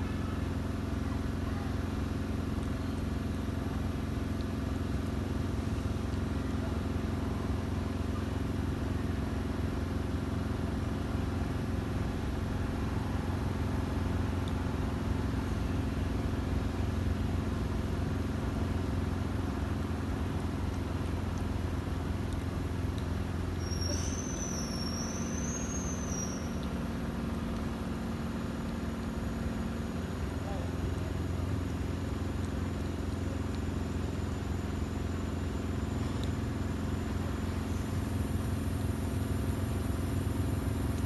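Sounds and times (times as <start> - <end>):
low engine hum: 0.0 - 41.0
high wavering whistle: 23.6 - 26.8.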